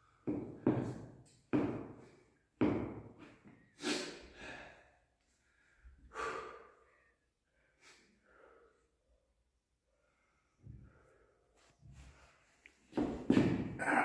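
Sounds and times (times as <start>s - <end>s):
man breathing forcefully: 3.8s - 9.0s.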